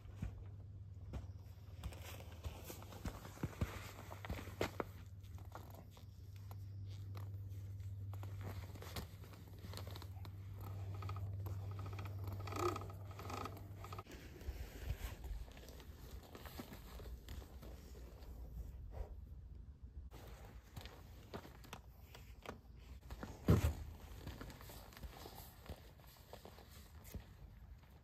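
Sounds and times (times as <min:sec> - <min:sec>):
steady low hum: 0:00.0 - 0:28.0
riding gear rustling and clicking: 0:01.8 - 0:18.4.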